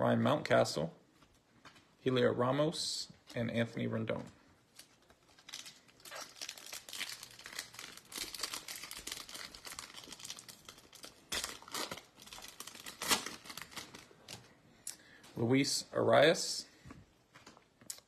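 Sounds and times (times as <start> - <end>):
foil wrapper tearing and crinkling: 4.7 - 14.4.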